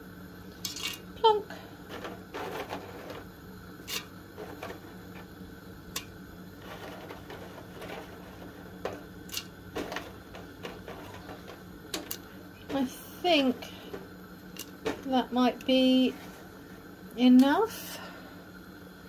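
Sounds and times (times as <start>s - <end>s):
low steady hum: 0.0s - 19.0s
noodles clicking against pot: 7.2s - 12.9s.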